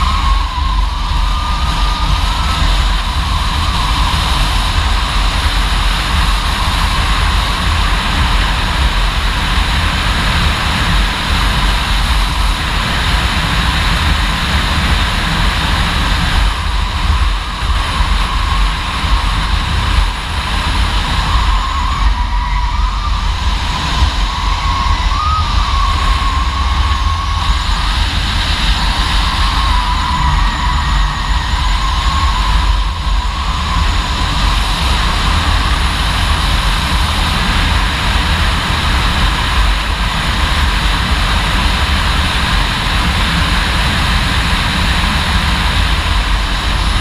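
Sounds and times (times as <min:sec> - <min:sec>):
wind buffeting microphone: 0:00.0 - 0:47.0
tyre squeal: 0:20.7 - 0:35.8.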